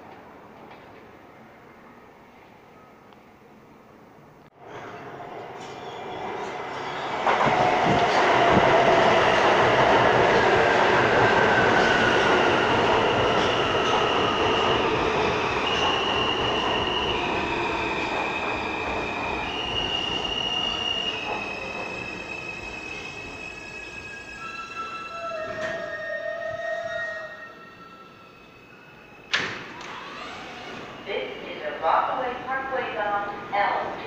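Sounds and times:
steel wheels on rail: 4.6 - 31.6
train braking to a stop: 4.6 - 31.8.

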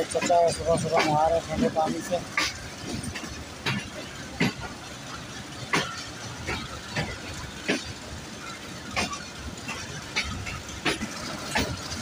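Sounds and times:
train rolling rumble: 0.0 - 12.0
train wheels clacking: 0.0 - 12.0.

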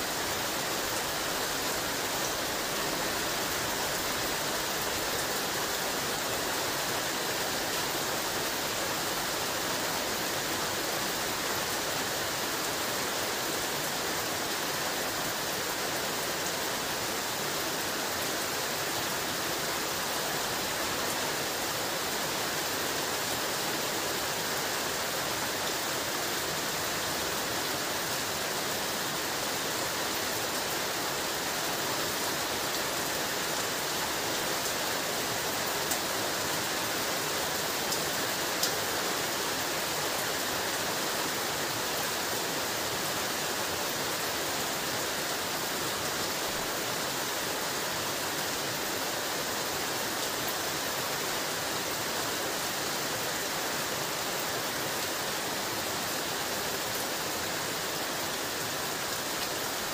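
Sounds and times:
heavy rain falling: 0.0 - 59.9.

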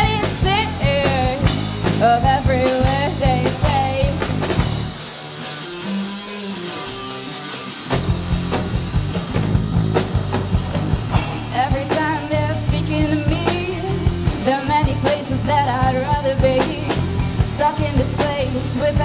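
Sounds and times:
electric guitar holding notes: 0.0 - 19.0
live rock band playing: 0.0 - 19.0.

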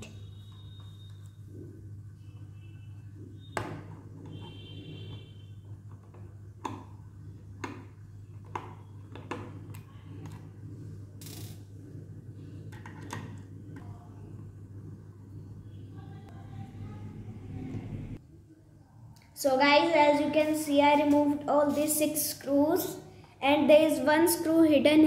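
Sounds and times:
steady low hum: 6.5 - 22.1.

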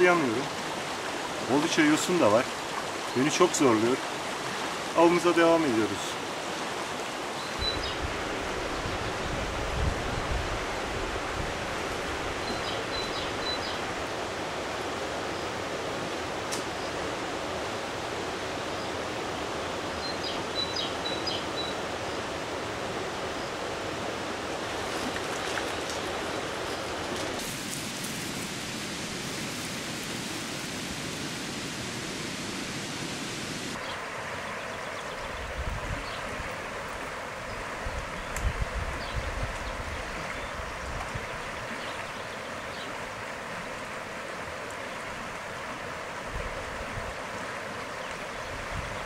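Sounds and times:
stream flowing over stones: 0.0 - 35.4, 36.2 - 49.0.

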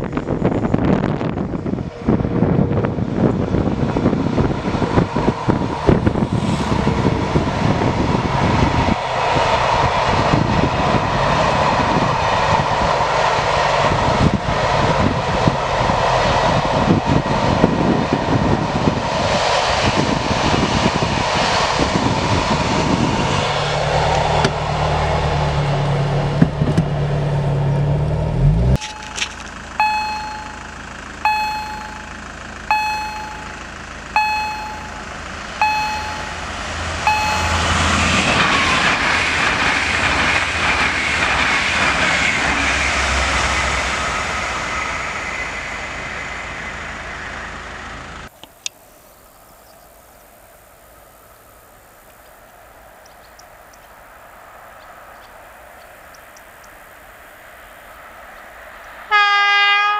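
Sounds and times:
freight train rumbling past: 0.0 - 48.4, 49.3 - 59.9
level-crossing warning bell: 28.8 - 38.6
wheels clattering over rails: 28.8 - 45.1.

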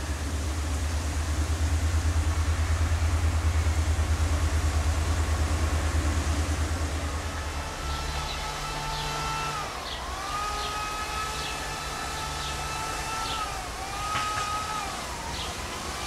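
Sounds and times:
diesel locomotive engine throb: 0.0 - 16.0.

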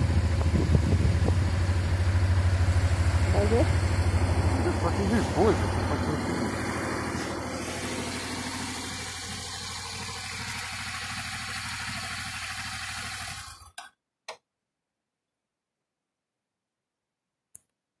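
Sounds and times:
motorcycle engine running: 0.0 - 13.8.

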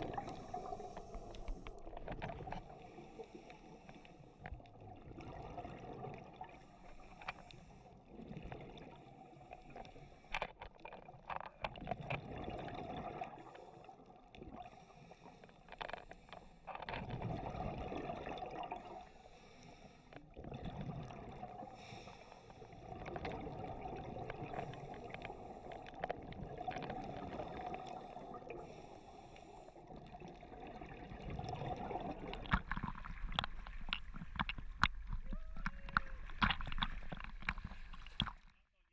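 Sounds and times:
hissing regulator inhalations: 0.1 - 1.8, 18.9 - 20.3, 27.4 - 29.8
bubbling exhalations underwater: 11.9 - 13.4, 17.1 - 19.0, 29.9 - 34.0.

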